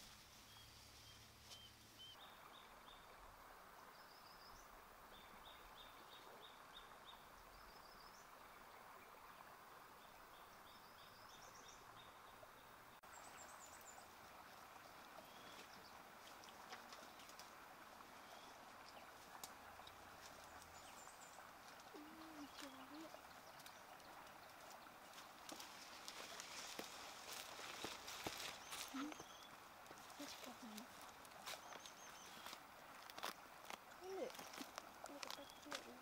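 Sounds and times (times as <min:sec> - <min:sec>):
soft steady hiss: 0:00.0 - 0:36.0
small bird chirping: 0:27.8 - 0:32.6, 0:34.0 - 0:36.0.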